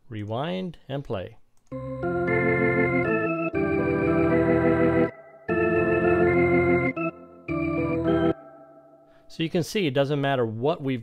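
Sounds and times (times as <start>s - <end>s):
organ playing sustained chords: 1.7s - 9.2s.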